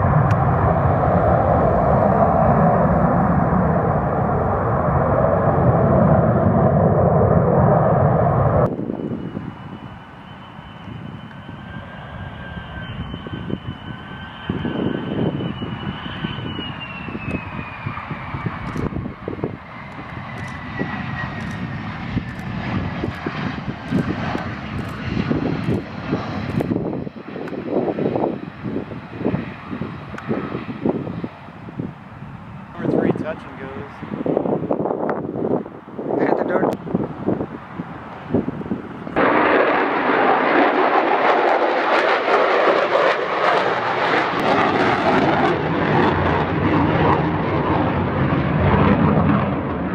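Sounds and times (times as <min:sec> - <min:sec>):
deep rumble: 0:00.0 - 0:10.1, 0:12.8 - 0:32.0
high jet engine whine: 0:00.0 - 0:49.9
jet engine roar: 0:00.0 - 0:49.9.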